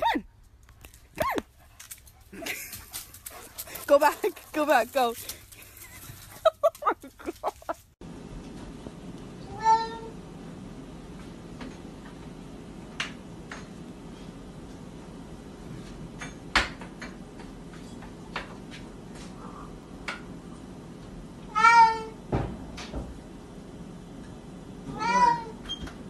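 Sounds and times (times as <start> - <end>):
cat meowing: 9.5 - 10.1, 21.5 - 22.2, 24.9 - 25.6.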